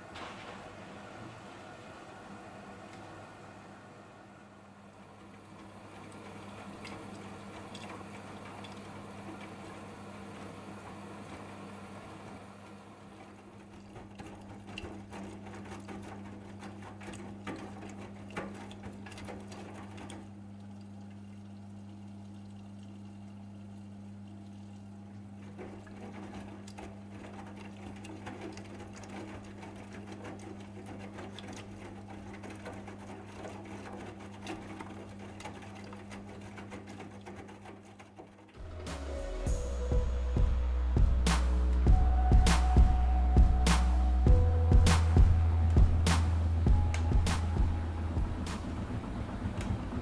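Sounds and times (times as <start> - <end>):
washing machine water sloshing: 0.0 - 41.2
drum knocking: 38.6 - 48.9
low hum: 38.6 - 50.0.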